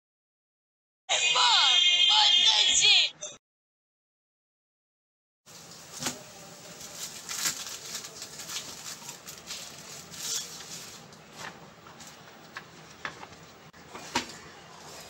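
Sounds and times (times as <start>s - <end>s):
paper rustling: 5.5s - 12.9s.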